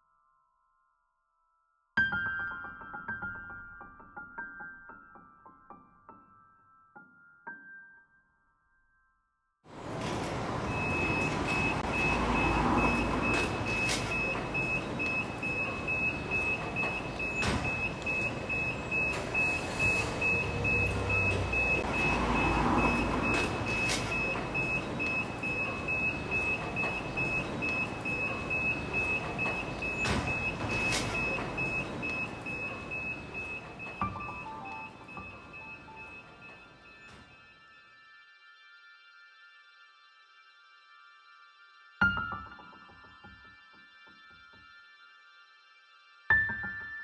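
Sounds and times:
traffic rumble: 9.7s - 36.4s
vehicles passing: 9.7s - 36.7s.

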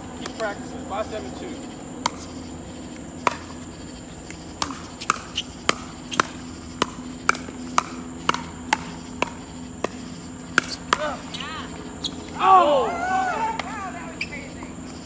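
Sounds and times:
paddles hitting plastic ball: 4.3s - 11.1s.

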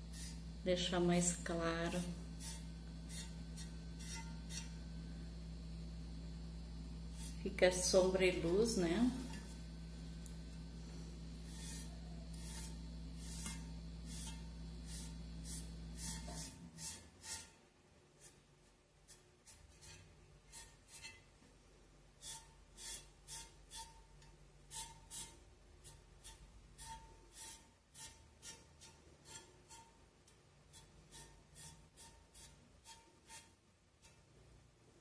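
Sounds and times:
rubbing strokes on a vase: 0.0s - 4.8s, 7.1s - 7.5s, 10.9s - 21.2s, 24.7s - 30.0s, 30.6s - 34.3s
low steady hum: 0.0s - 35.0s.

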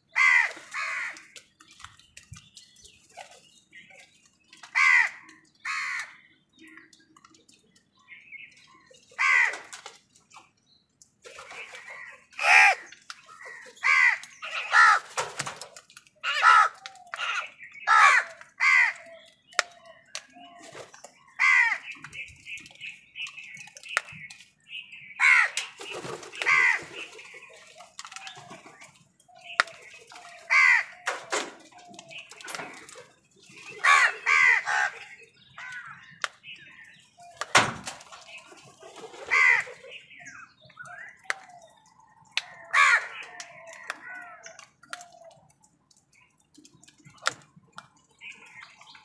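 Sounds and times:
crows cawing: 0.1s - 1.3s, 4.7s - 6.2s, 9.2s - 9.7s, 11.9s - 15.2s, 16.2s - 19.2s, 21.3s - 21.9s, 25.2s - 25.6s, 26.4s - 26.9s, 30.3s - 31.3s, 33.8s - 36.0s, 39.2s - 39.8s, 42.4s - 44.7s.

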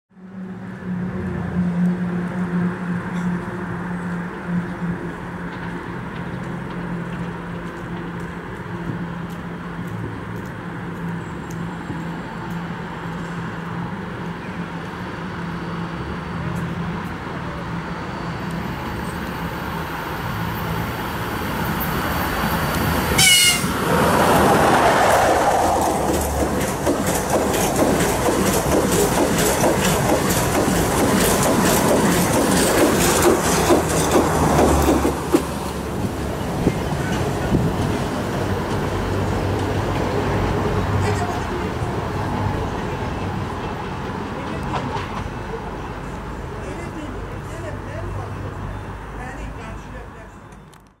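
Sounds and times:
train passing rush: 0.2s - 50.4s
electric locomotive hum: 0.2s - 50.9s
wheels clicking over rail joints: 24.2s - 41.4s.

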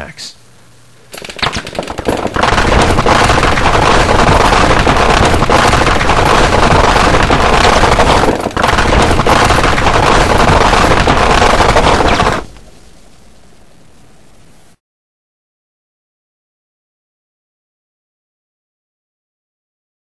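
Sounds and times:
machine gun fire: 1.1s - 12.6s.

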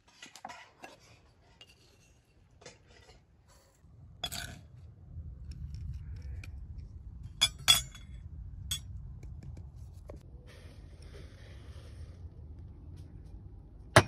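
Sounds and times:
low rumble: 3.9s - 14.0s.

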